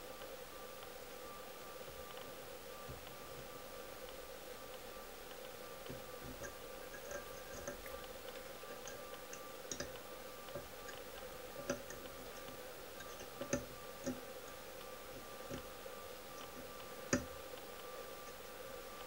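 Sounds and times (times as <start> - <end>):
faint steady hum: 0.0 - 19.0
fingers handling thread ticking: 4.0 - 15.7.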